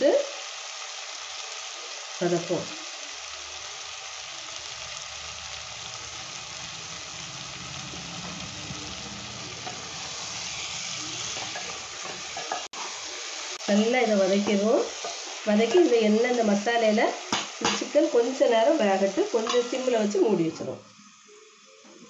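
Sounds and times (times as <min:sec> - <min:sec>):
chicken sizzling in oil: 0:00.0 - 0:22.0
low hum: 0:05.4 - 0:11.3.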